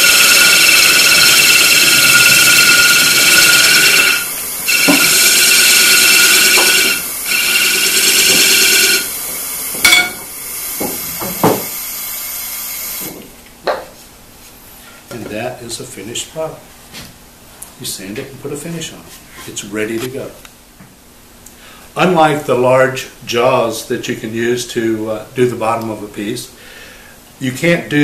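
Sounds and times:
lathe gouge scraping wood: 0:00.0 - 0:09.1.

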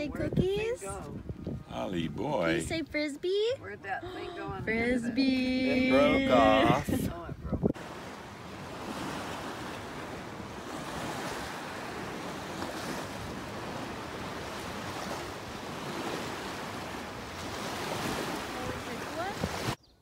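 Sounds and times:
wind noise on microphone: 0:00.0 - 0:03.0, 0:04.2 - 0:08.0, 0:08.8 - 0:19.9
waves washing on sand: 0:07.7 - 0:19.8.

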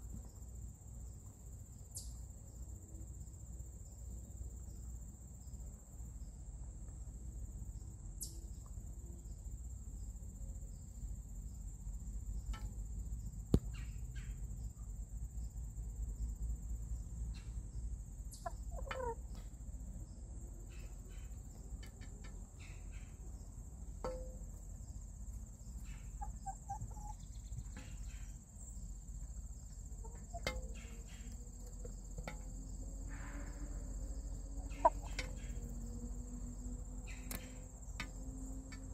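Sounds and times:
crickets trilling: 0:00.0 - 0:38.9
hens clucking: 0:18.4 - 0:19.4, 0:25.8 - 0:28.2, 0:29.9 - 0:36.0.

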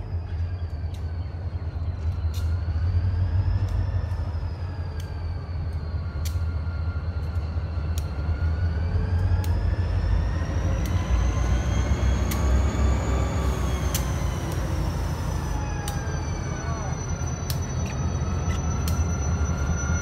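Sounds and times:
diesel locomotive rumble and whine: 0:00.0 - 0:20.0
sharp clicks: 0:03.5 - 0:06.5, 0:12.2 - 0:12.6, 0:13.2 - 0:16.6, 0:17.2 - 0:19.8.

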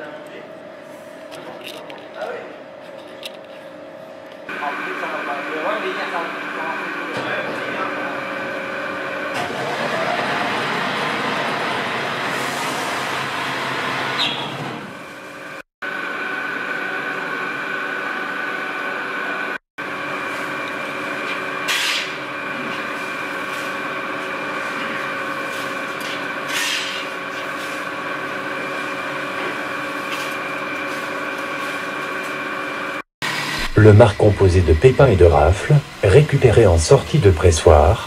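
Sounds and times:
wine press humming and whining: 0:15.9 - 0:38.0.

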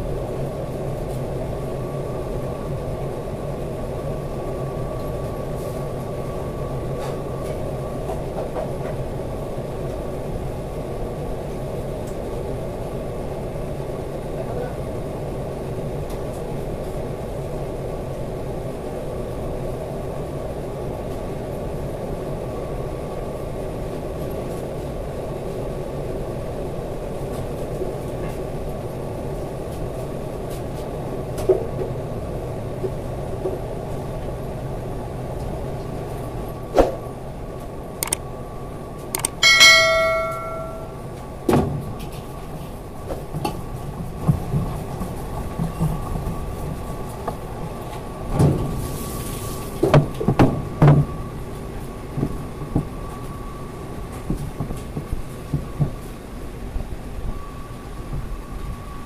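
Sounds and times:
ringing metal clang: 0:39.4 - 0:41.0.

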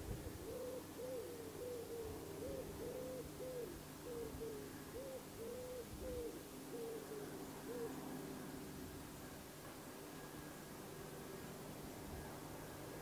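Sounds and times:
dove cooing: 0:00.0 - 0:08.4.

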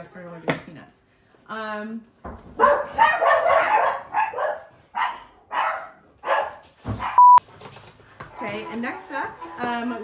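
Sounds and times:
dog barking: 0:02.6 - 0:07.3.

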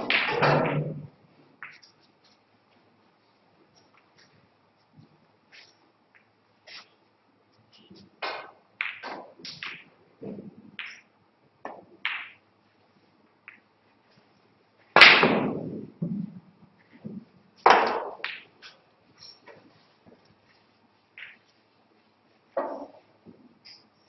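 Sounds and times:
cue ball knocking on table: 0:17.7 - 0:18.4, 0:22.6 - 0:23.0.

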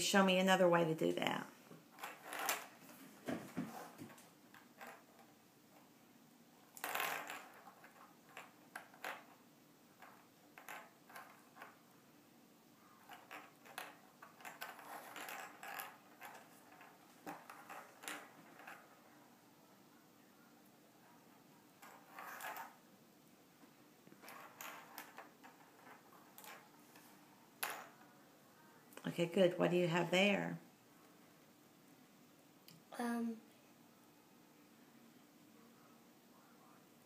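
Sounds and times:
ornament balls clinking: 0:01.9 - 0:02.8, 0:06.7 - 0:11.9, 0:13.0 - 0:19.2, 0:24.1 - 0:27.0.

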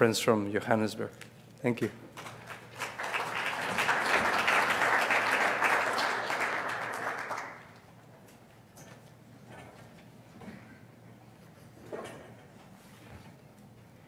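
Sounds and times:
audience applauding: 0:02.2 - 0:07.9.

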